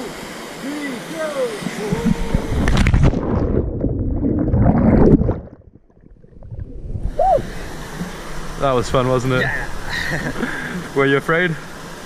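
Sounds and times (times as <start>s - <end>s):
muffled underwater rushing and bubbling: 0.0s - 12.0s
open-air water noise: 0.0s - 12.0s
body splashing into water: 2.4s - 5.7s.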